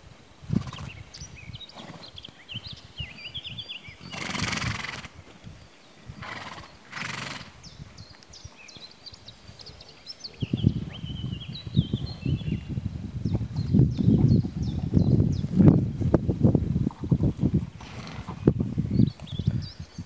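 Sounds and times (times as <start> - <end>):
horse snorting: 0.5 - 1.0, 1.7 - 2.2, 4.0 - 5.3, 6.1 - 7.7, 17.0 - 18.6
light birdsong: 0.6 - 16.1, 17.3 - 20.0
horse chewing grass: 15.5 - 18.6.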